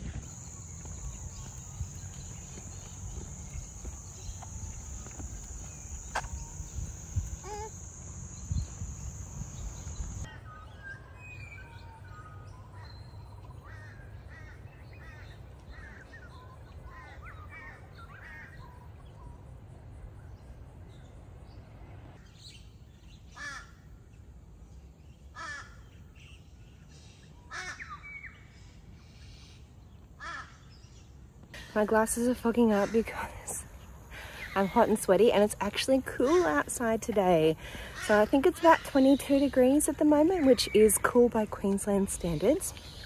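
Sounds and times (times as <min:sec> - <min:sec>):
birds chirping and warbling: 0:00.0 - 0:19.7, 0:20.3 - 0:43.0
high insect buzz: 0:00.2 - 0:10.3.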